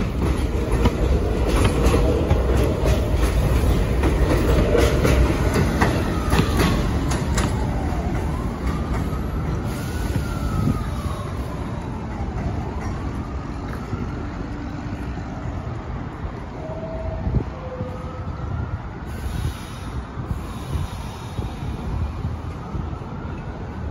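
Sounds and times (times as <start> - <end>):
wheels clacking over rail joints: 0.0 - 10.6
distant siren wailing: 0.0 - 19.3, 21.7 - 23.9
subway train rumbling: 0.0 - 23.9.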